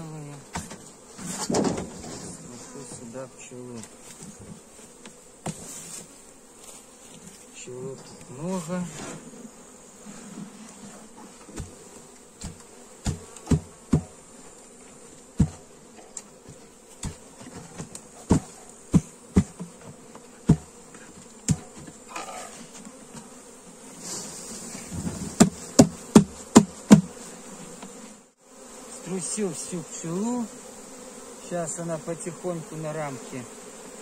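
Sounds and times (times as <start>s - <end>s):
honeybees buzzing: 0.0s - 34.0s
knocking on hive parts: 0.4s - 6.1s, 11.4s - 14.3s, 15.3s - 23.4s, 24.9s - 28.0s.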